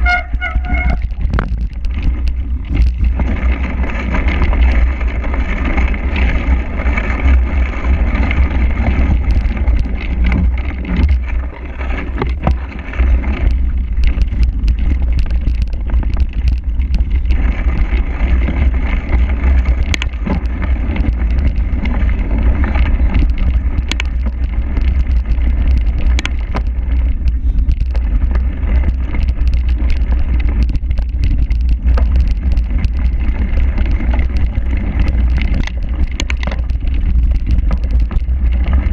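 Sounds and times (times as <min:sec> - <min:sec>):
bike rattling over bumps: 0:00.0 - 0:38.9
wind buffeting microphone: 0:00.0 - 0:38.9.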